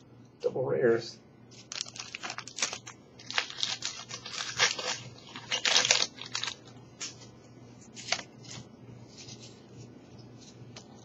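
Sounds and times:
foil wrapper crinkling and tearing: 1.5 - 7.2.

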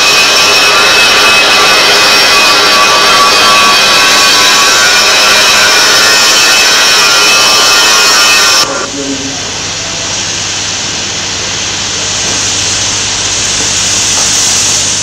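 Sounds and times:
steady hiss: 8.6 - 15.0.

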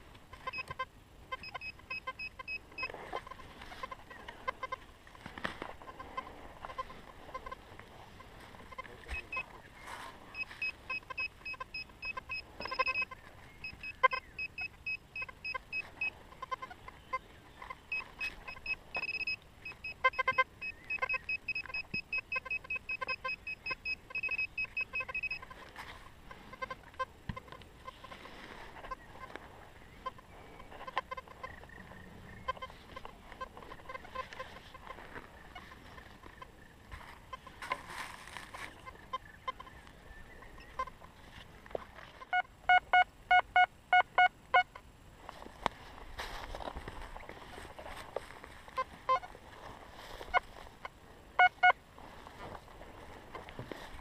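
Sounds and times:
metal detector short high beeps: 0.4 - 3.3, 9.1 - 9.4, 10.3 - 16.6, 17.9 - 25.4.

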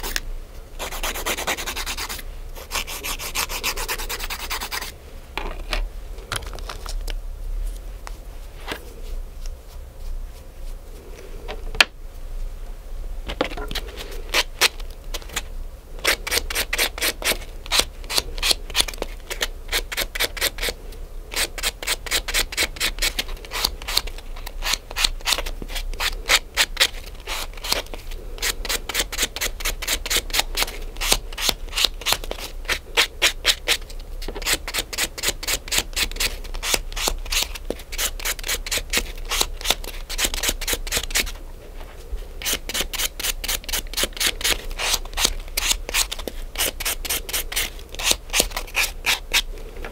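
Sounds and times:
nail file scraping fingernail: 0.8 - 4.9, 16.0 - 20.8, 21.4 - 41.3, 42.4 - 49.5.

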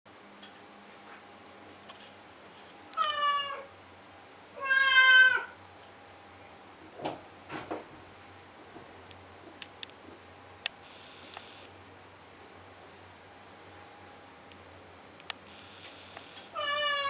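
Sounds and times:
cat yowling: 3.0 - 3.7, 4.6 - 5.6, 16.5 - 17.0.

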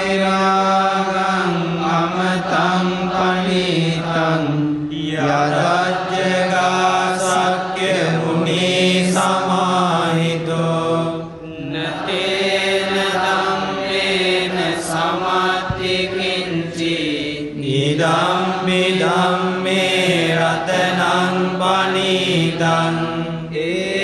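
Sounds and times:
person chanting: 0.0 - 24.0.

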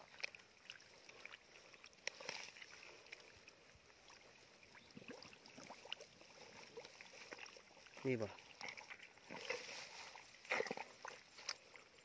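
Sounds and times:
faint rustling in grass: 0.0 - 12.0.

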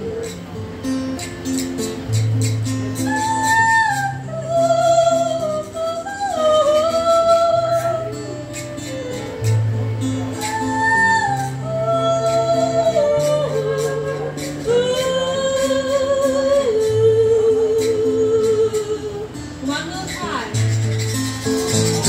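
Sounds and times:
acoustic guitar: 0.0 - 22.0
woman singing: 2.9 - 9.6, 10.2 - 20.6.

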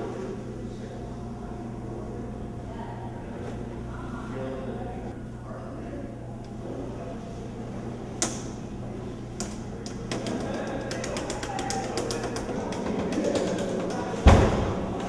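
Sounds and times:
steady low hum: 0.0 - 15.0
keypad buttons clicking: 9.4 - 14.1
loud thump: 14.2 - 14.9.

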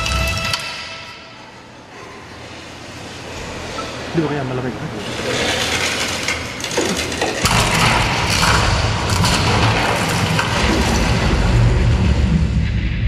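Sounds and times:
rushing noise: 7.4 - 13.0
deep low rumble: 7.5 - 13.0.

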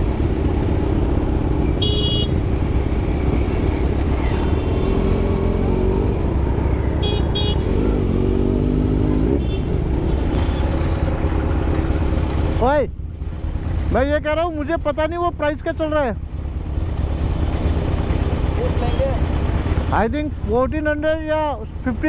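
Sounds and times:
motorcycle engine rumble: 0.0 - 22.0
vehicle horn toots: 1.7 - 2.4, 7.0 - 7.8.

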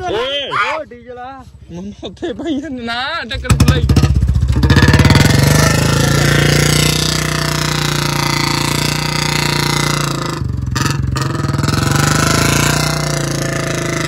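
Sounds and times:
motorcycle engine revving high: 3.4 - 14.0.

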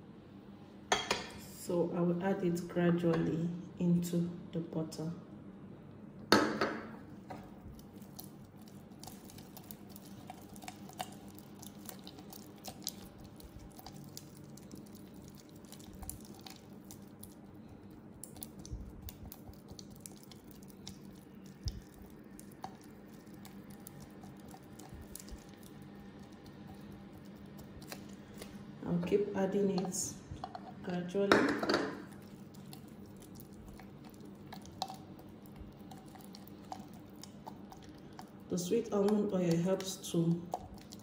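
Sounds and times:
spatula squishing butter: 7.2 - 30.9, 32.0 - 41.0.

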